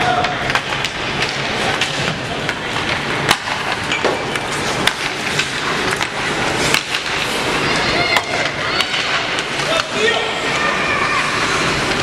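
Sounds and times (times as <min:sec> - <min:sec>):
hockey sticks and puck clacking: 0:00.0 - 0:12.0.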